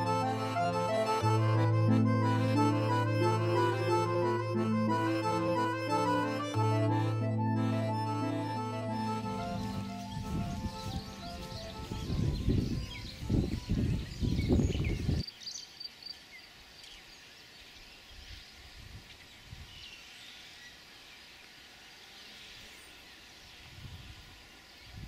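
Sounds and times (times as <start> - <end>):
wind rumble on microphone: 9.6 - 15.2, 23.6 - 25.0
steady background hiss: 15.4 - 25.0.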